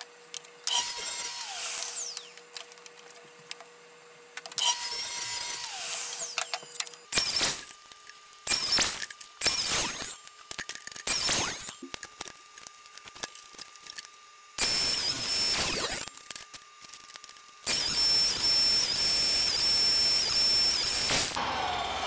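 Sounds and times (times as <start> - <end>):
table saw whining: 0.0 - 3.0, 4.5 - 7.8, 8.4 - 10.3, 11.0 - 11.9, 14.6 - 16.4, 17.1 - 22.0.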